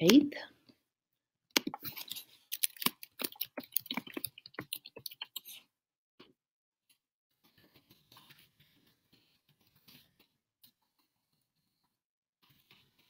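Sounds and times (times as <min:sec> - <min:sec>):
computer keyboard typing: 0:01.6 - 0:05.4.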